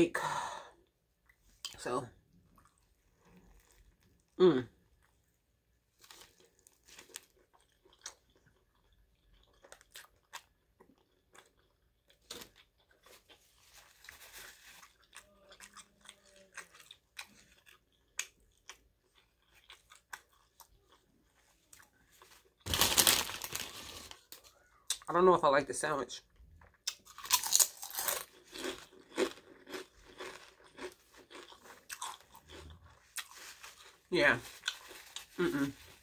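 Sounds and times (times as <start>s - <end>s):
wet chewing and mouth clicks: 6.0s - 13.7s.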